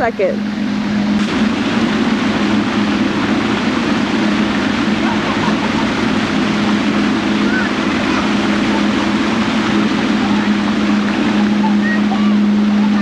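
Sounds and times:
low hum: 0:00.0 - 0:13.0
loud rushing noise: 0:00.4 - 0:13.0.

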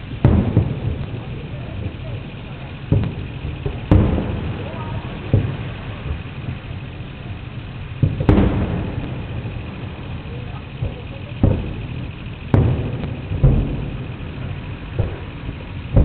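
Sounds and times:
firework shells booming: 0:00.0 - 0:16.0.

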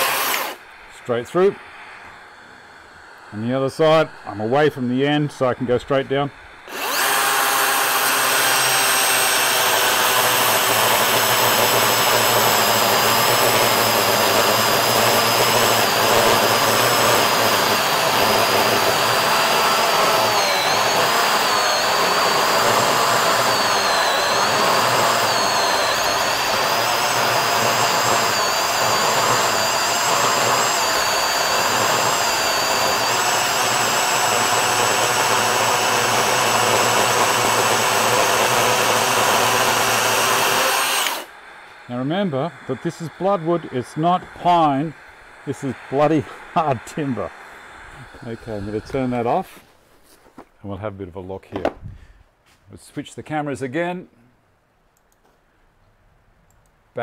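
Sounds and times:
chainsaw cutting log: 0:00.0 - 0:00.7, 0:06.0 - 0:49.6.

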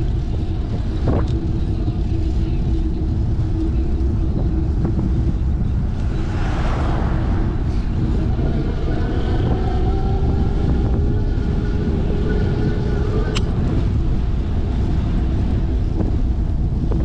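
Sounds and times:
bicycle tyres on asphalt: 0:00.0 - 0:17.0
wind on microphone: 0:00.0 - 0:17.0
car passing: 0:05.7 - 0:13.3.

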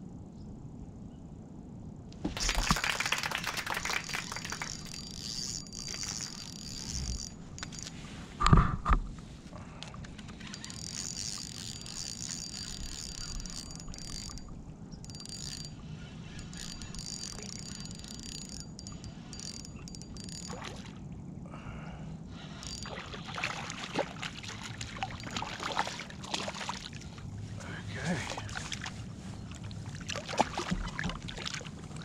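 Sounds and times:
fishing reel whirring: 0:02.4 - 0:08.0, 0:10.2 - 0:20.8, 0:22.4 - 0:23.6, 0:25.1 - 0:25.4.

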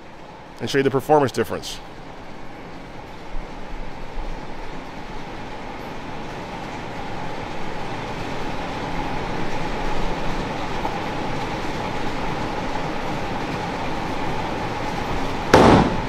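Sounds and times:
bowling lane machinery rumbling: 0:00.0 - 0:16.0.

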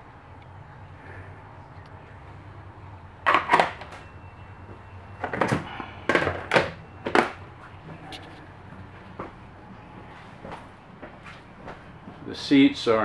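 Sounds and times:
faint low hum: 0:00.0 - 0:03.2.

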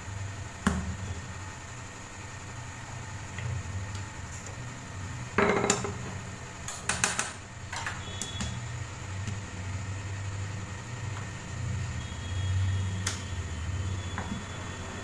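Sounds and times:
rolling pin knocking on countertop: 0:05.4 - 0:06.0.

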